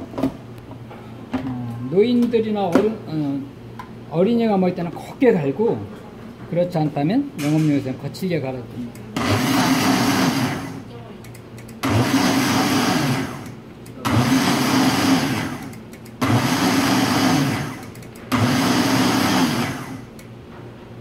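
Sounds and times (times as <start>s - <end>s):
blender motor pulsing: 9.2s - 10.9s, 11.8s - 20.1s.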